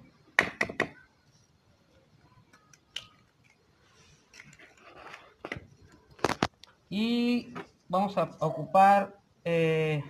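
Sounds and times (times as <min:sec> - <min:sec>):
faint clicks and rustling: 0:02.2 - 0:06.8.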